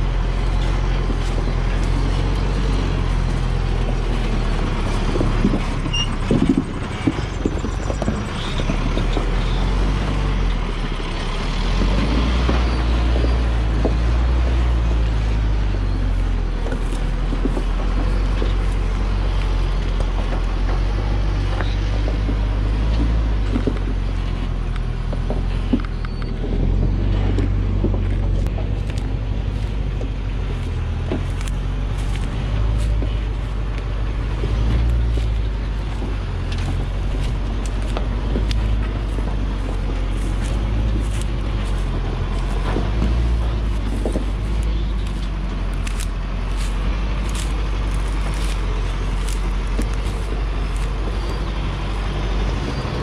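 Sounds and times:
diesel truck engine rumbling: 0.0 - 53.0
clanks and knocks: 0.3 - 11.0, 15.6 - 52.2.

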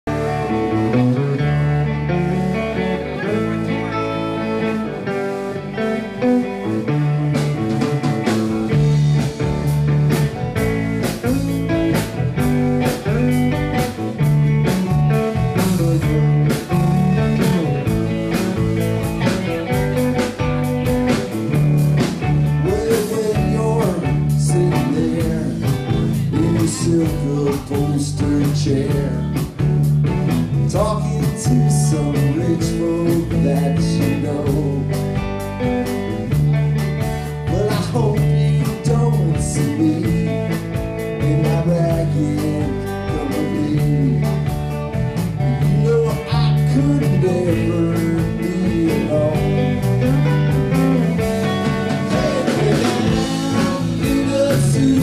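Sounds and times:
electric guitars: 0.0 - 55.0
steady drum beat: 6.9 - 55.0.

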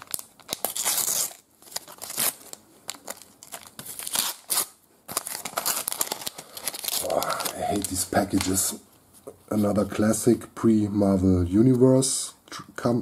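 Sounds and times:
paper packet being torn open: 0.0 - 8.7.

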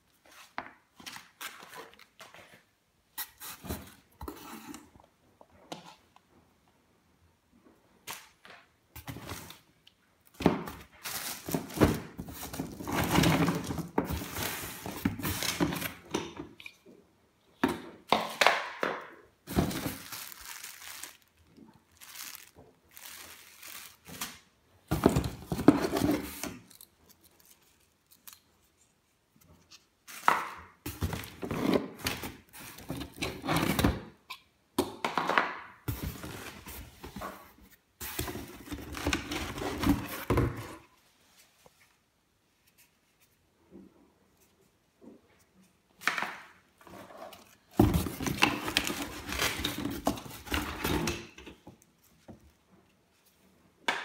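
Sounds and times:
plastic bags crinkling: 10.9 - 15.7, 19.4 - 24.5
items scraping against cardboard box: 19.5 - 21.3, 24.9 - 26.8.

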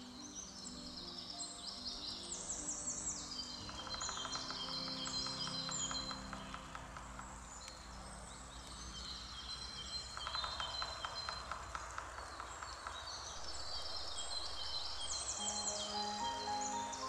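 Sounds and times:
songbirds singing: 0.0 - 17.0
woodpecker tapping: 3.6 - 13.4.

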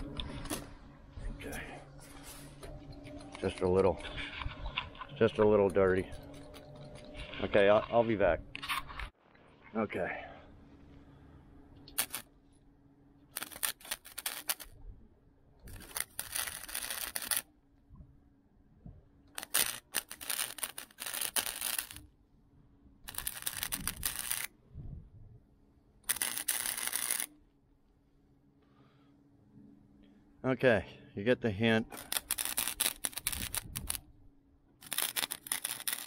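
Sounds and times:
welding arc crackling: 11.8 - 12.3, 13.3 - 14.8, 15.7 - 17.5, 19.3 - 22.1, 23.0 - 24.5, 26.0 - 27.3, 31.9 - 34.1, 34.8 - 36.0.

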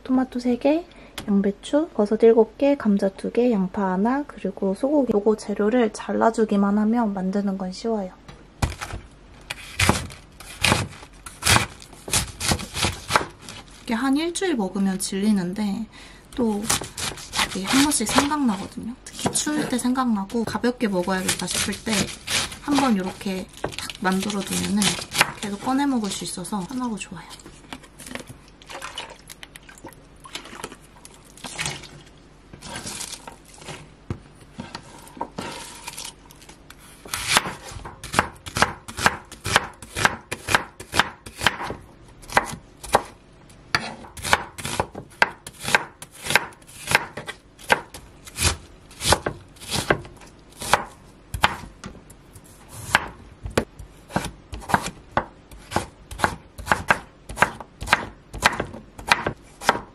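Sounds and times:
knife chopping on wooden board: 8.6 - 13.6, 16.7 - 18.4, 19.1 - 19.7, 21.2 - 25.7, 37.0 - 43.1, 43.7 - 51.7, 52.8 - 59.9.

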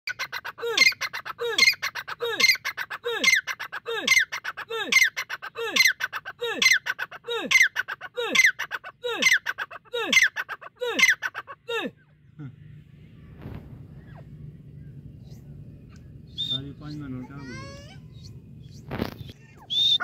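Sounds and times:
francolin calling: 14.0 - 20.0.

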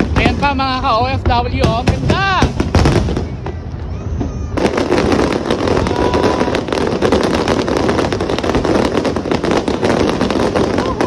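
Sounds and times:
fireworks bursting and crackling: 0.0 - 11.0.

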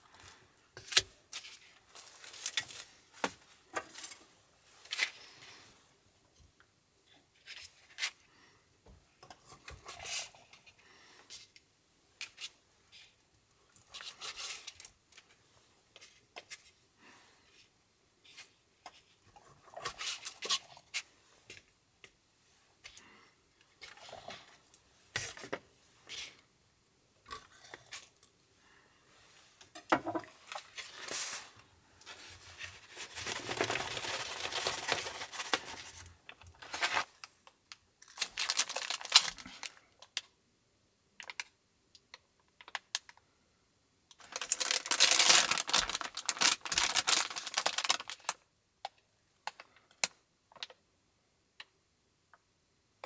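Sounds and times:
rustling: 27.6 - 37.3.

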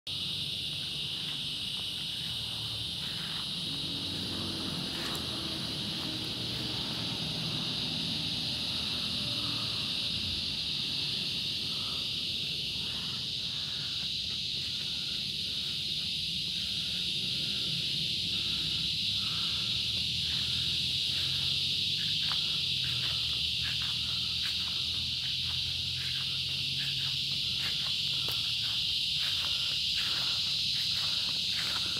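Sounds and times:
cicadas droning: 0.1 - 31.9.

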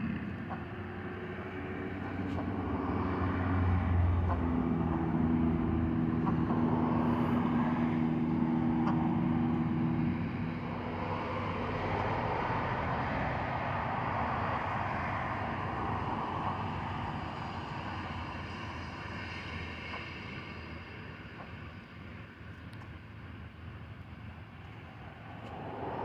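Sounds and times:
distant engine rushing: 0.0 - 26.0
low hum: 23.2 - 26.0.

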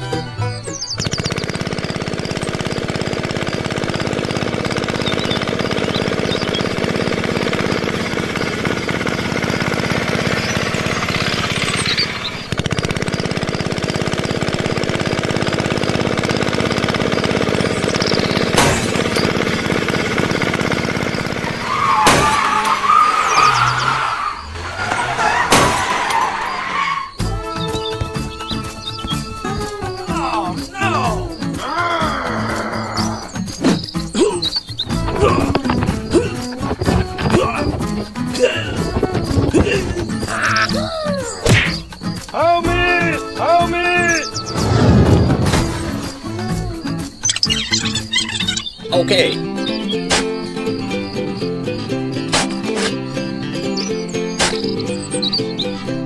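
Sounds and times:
tractor engine running: 0.0 - 56.0
wavering squeal: 21.1 - 37.3, 44.0 - 48.9.

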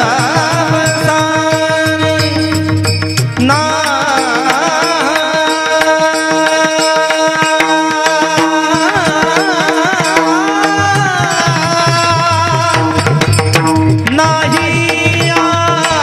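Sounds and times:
man singing: 0.0 - 16.0
barrel drum: 8.4 - 16.0.

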